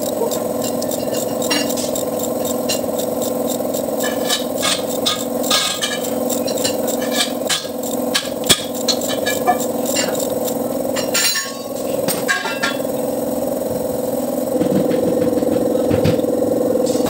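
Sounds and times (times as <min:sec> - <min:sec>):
ratchet wrench clicking: 0:00.0 - 0:14.5
steady low hum: 0:00.0 - 0:17.0
metal tool clinks: 0:11.0 - 0:12.9.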